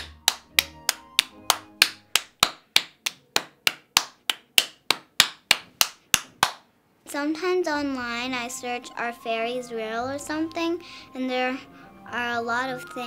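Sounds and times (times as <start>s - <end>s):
girl clapping hands: 0.0s - 6.6s.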